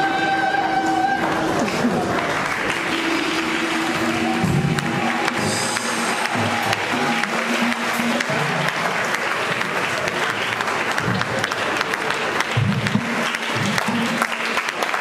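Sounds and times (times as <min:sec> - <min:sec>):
low pitched tones: 0:00.0 - 0:11.4
audience applauding: 0:00.0 - 0:15.0.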